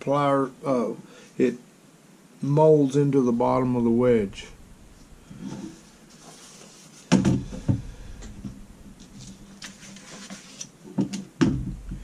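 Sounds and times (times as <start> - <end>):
rustling: 3.4 - 10.8.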